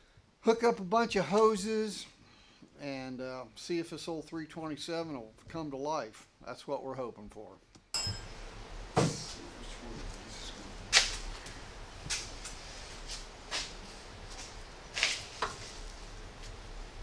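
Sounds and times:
low steady hum: 8.0s - 17.0s.

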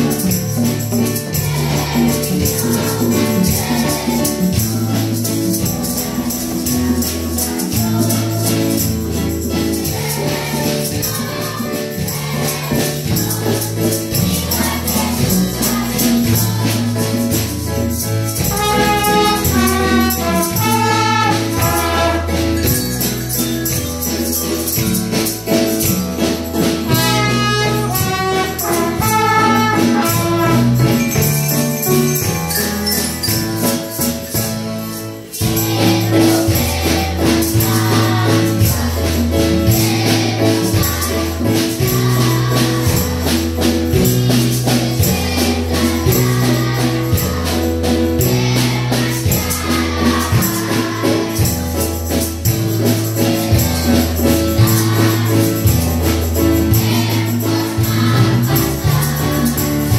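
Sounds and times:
tambourines jingling: 0.0s - 59.9s
trumpets playing melody: 18.5s - 22.6s, 26.9s - 31.0s.

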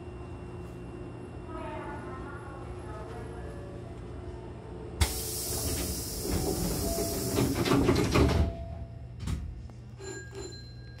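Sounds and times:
air hiss from train doors: 5.0s - 8.0s
sliding doors rumbling shut: 5.0s - 8.6s.

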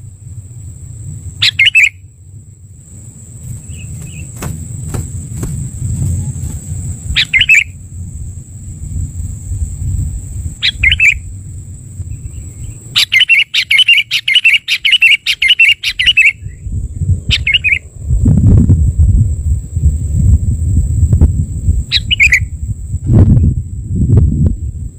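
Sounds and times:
bulbul calling: 1.4s - 2.1s, 3.4s - 7.8s, 10.6s - 11.3s, 12.1s - 16.6s, 17.3s - 17.8s, 21.9s - 22.5s.

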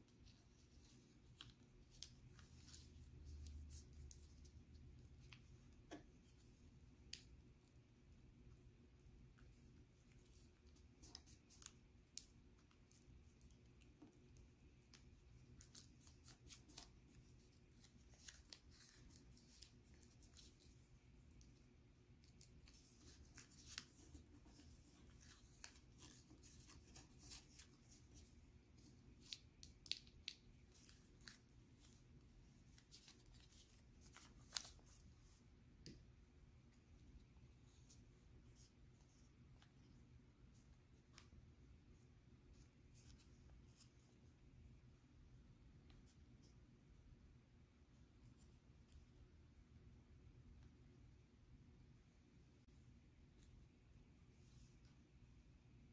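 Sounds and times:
paper crinkling and clicking: 10.1s - 21.6s, 32.6s - 35.0s.

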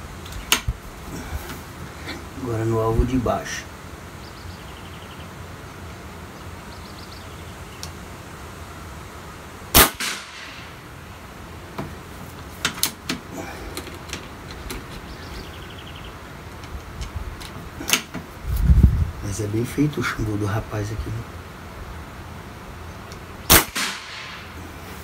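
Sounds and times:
air rifle shot with echo: 9.7s - 10.8s, 23.5s - 24.6s.

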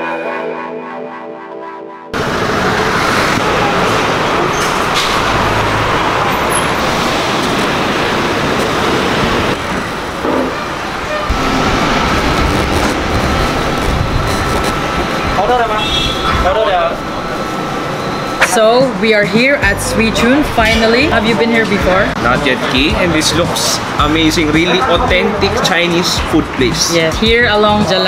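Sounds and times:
background music: 0.0s - 2.2s, 18.5s - 28.0s
passing cars: 2.2s - 27.9s.

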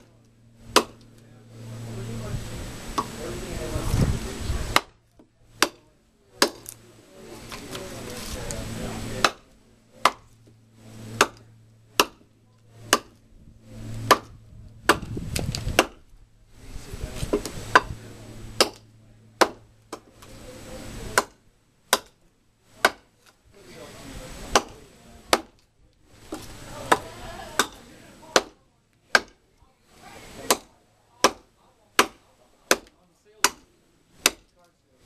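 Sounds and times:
knife chopping firewood: 0.7s - 1.2s, 2.9s - 3.2s, 4.6s - 6.8s, 9.2s - 13.2s, 13.9s - 16.0s, 17.2s - 18.0s, 18.6s - 20.3s, 21.1s - 23.4s, 24.4s - 29.4s, 30.3s - 34.6s.

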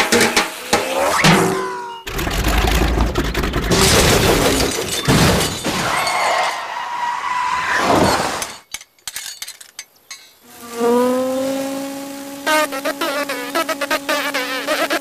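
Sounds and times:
cartoon rushing noise: 0.3s - 2.6s
sliding squeal: 5.7s - 8.6s.

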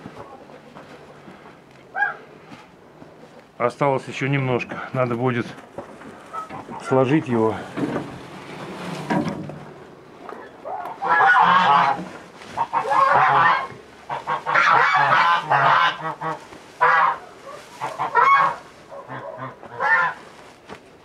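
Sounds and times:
geese honking: 6.1s - 7.2s, 10.3s - 20.4s.

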